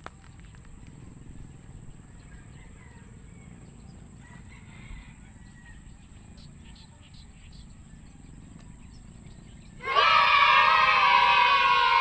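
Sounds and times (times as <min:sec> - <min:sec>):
rooster crowing: 0:02.2 - 0:06.0, 0:09.8 - 0:12.0.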